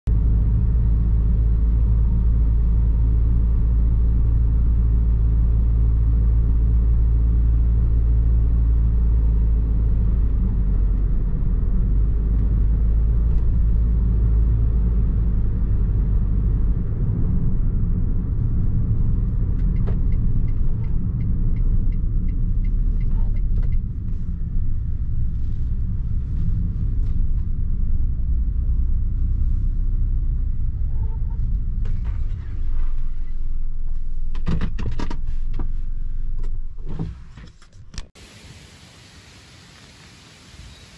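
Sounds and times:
car driving rumble: 0:00.1 - 0:38.1
light ticks: 0:19.6 - 0:23.9.

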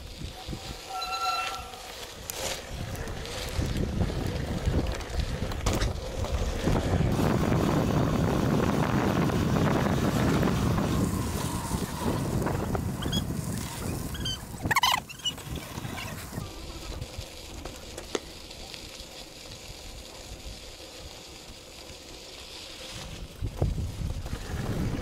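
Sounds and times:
bike ride rumble: 0:00.0 - 0:25.0
tyres rolling over dirt: 0:00.0 - 0:25.0
short high squeak: 0:00.8 - 0:02.1, 0:13.8 - 0:15.4
wind buffeting microphone: 0:02.7 - 0:17.3, 0:23.2 - 0:25.0.

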